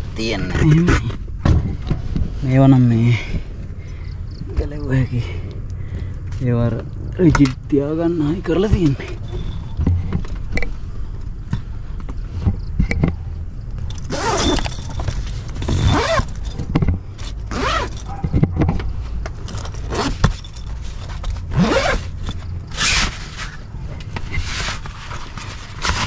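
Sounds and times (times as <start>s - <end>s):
fabric rustling: 13.9s - 18.2s
zippers being pulled: 13.9s - 18.4s, 19.4s - 23.6s.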